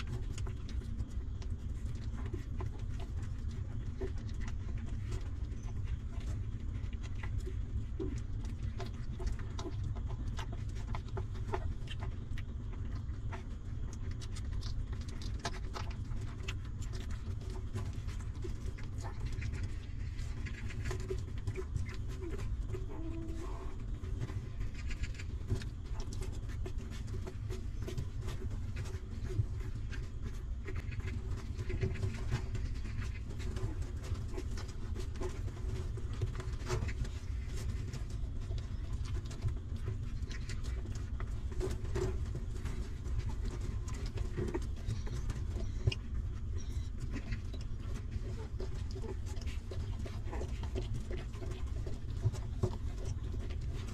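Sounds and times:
puppies suckling clicks: 0:00.0 - 0:53.9
steady low rumble: 0:00.0 - 0:53.9
faint puppy squeak: 0:22.2 - 0:23.9, 0:44.8 - 0:49.4.

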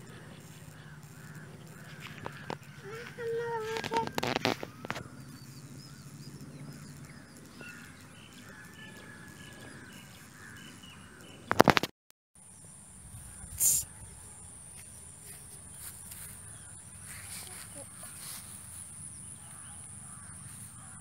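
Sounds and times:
small birds chirping: 0:00.0 - 0:11.7, 0:12.4 - 0:21.0
high insect hum: 0:00.0 - 0:21.0
short hiss: 0:13.5 - 0:13.9.

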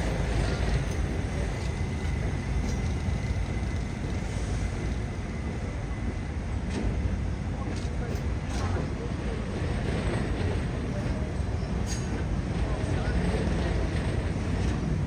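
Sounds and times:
subway train rumbling slowly: 0:00.0 - 0:15.0.

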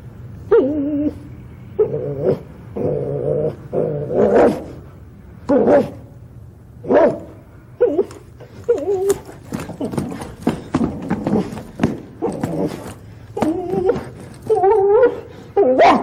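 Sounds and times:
person voicing dog calls: 0:12.2 - 0:16.0.

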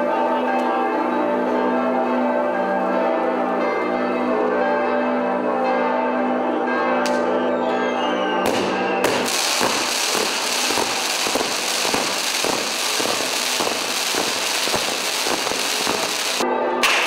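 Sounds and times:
firecrackers crackling and banging: 0:08.5 - 0:17.0
spark fountains hissing: 0:09.2 - 0:16.4.

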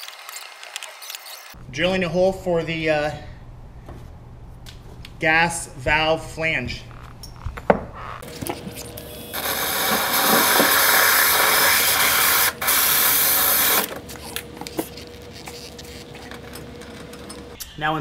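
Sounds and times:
drill grinding through stone: 0:09.3 - 0:13.9.

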